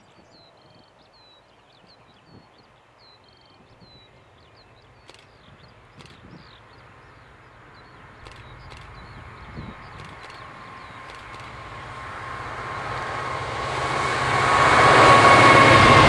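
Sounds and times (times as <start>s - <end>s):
small birds chirping: 0.0s - 12.1s
diesel locomotive engine rumble: 3.7s - 16.0s
brief clicks: 5.0s - 6.6s, 8.2s - 11.7s.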